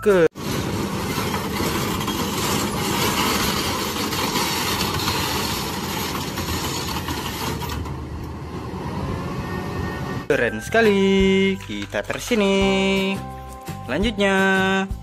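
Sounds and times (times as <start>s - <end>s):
diesel engine rumbling: 0.0s - 10.4s.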